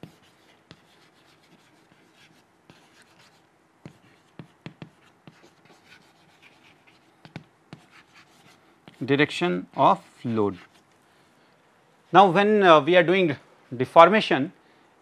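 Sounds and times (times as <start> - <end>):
chalk scratching on chalkboard: 0.0 - 9.2, 9.8 - 10.9.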